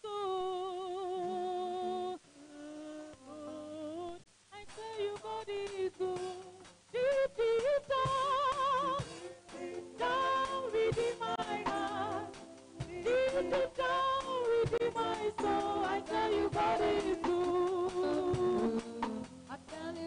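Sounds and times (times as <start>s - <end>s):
woman singing a hymn: 0.0s - 20.0s.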